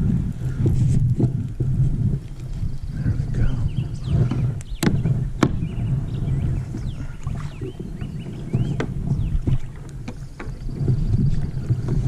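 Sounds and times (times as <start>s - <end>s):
wind and water rumble: 0.0s - 12.0s
small birds chirping: 2.4s - 12.0s
sharp knocks: 4.2s - 5.6s.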